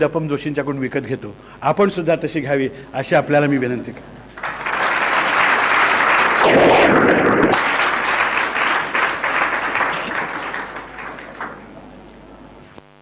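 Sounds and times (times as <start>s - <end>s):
electrical hum: 0.0s - 13.0s
audience applauding: 4.4s - 12.0s.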